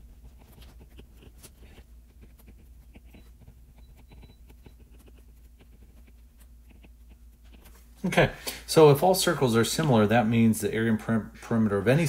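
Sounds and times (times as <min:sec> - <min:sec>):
pen ticks and scrapes on touchscreen: 0:00.0 - 0:07.8
low steady hum: 0:00.0 - 0:12.0.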